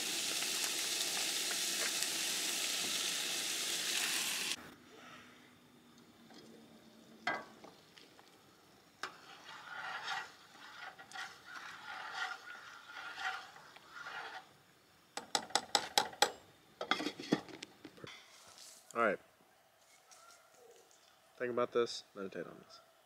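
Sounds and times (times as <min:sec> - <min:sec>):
spoon stirring and scraping pot: 0:09.0 - 0:14.6, 0:16.8 - 0:17.4.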